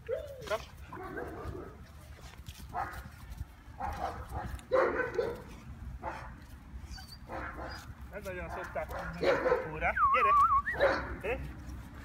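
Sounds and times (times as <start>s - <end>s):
puppy barking: 2.7s - 3.0s, 3.8s - 6.4s, 7.2s - 7.9s, 8.5s - 9.9s, 10.7s - 11.3s.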